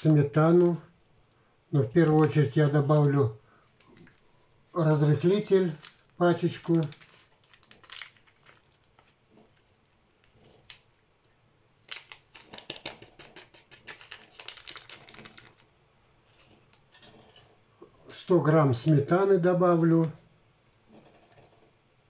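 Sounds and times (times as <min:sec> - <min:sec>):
paper sachet tearing: 0:04.9 - 0:09.2, 0:11.9 - 0:15.7
powder shaken and tapped from sachet: 0:05.3 - 0:09.2, 0:11.8 - 0:15.7.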